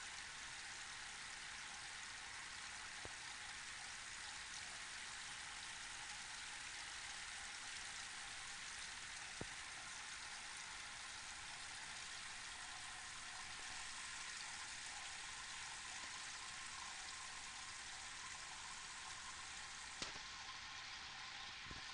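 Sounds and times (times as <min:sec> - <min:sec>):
fountain water falling: 0:00.0 - 0:21.9
small click: 0:20.0 - 0:20.2.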